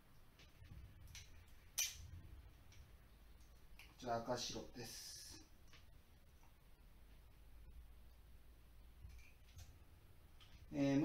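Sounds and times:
hand tool clicks on wire: 0:01.1 - 0:02.1.

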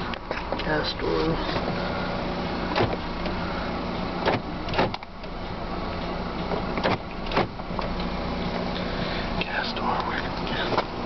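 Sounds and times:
steady low hum: 0:00.0 - 0:11.0
clicks and knocks in car cabin: 0:00.1 - 0:01.8, 0:02.7 - 0:03.4, 0:04.0 - 0:05.4, 0:06.0 - 0:08.1, 0:09.5 - 0:11.0.

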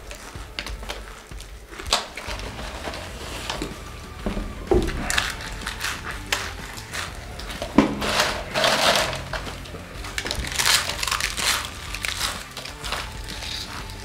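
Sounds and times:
chips crunching while chewed: 0:04.9 - 0:14.0.

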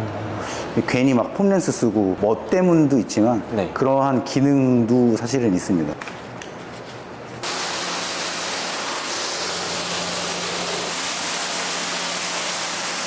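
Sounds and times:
pressure washer spraying water: 0:07.4 - 0:13.0.

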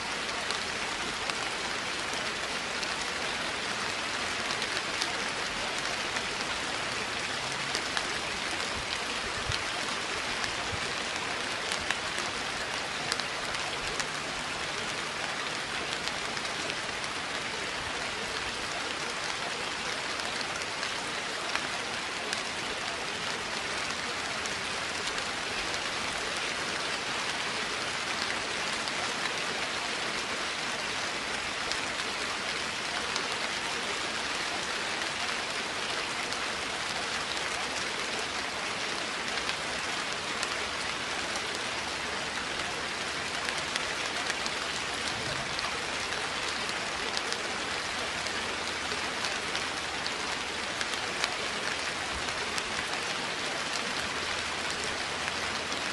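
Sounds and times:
steady rain: 0:00.0 - 0:55.9.

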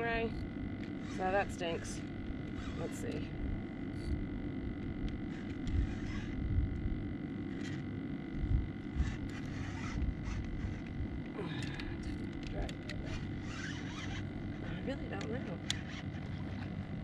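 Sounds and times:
wind rumble on microphone: 0:02.1 - 0:07.2, 0:08.3 - 0:13.4.

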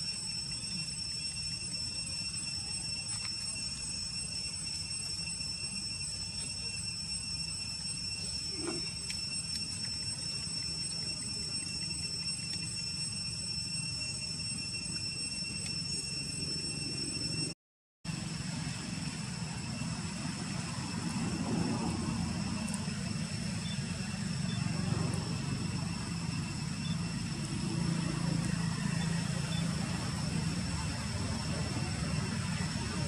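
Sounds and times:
insect chorus: 0:00.0 - 0:17.5, 0:18.1 - 0:33.0
low steady rumble: 0:18.1 - 0:33.0.

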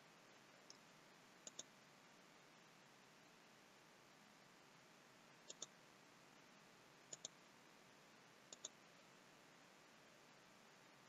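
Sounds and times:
steady low hiss: 0:00.0 - 0:11.0
computer mouse double clicks: 0:01.4 - 0:01.7.

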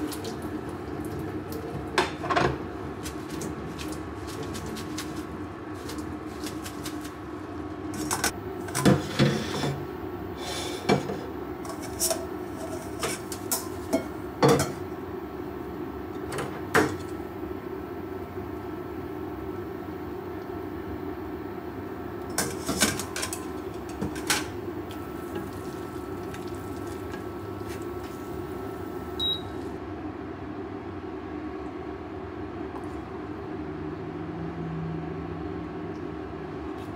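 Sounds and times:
low kitchen hum: 0:00.0 - 0:36.9
short high beep: 0:29.2 - 0:29.6.

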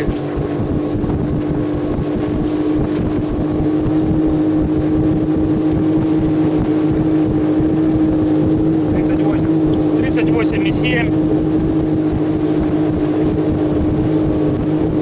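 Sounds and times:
outboard motor droning: 0:00.0 - 0:15.0
water and wind noise: 0:00.0 - 0:15.0.

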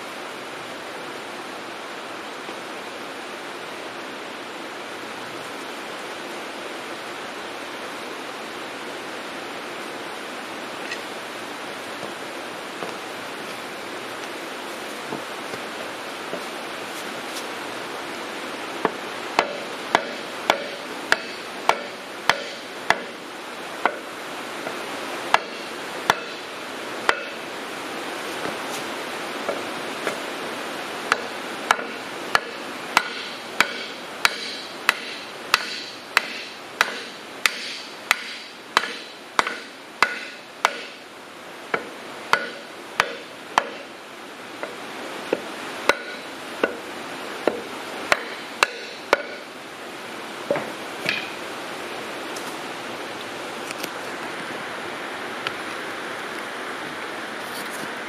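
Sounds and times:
steady hiss: 0:00.0 - 0:58.0.

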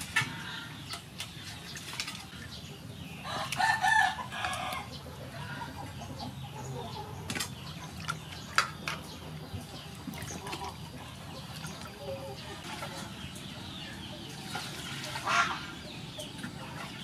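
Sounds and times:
water sloshing in metal bowl: 0:00.0 - 0:02.8, 0:07.2 - 0:17.0
chicken clucking: 0:02.7 - 0:17.0.

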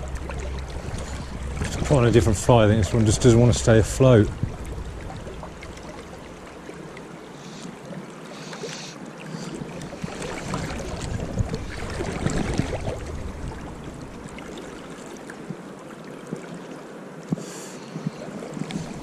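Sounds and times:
wind buffeting microphone: 0:00.0 - 0:06.6, 0:09.8 - 0:14.4
river water rushing: 0:00.0 - 0:17.3, 0:18.2 - 0:19.0.

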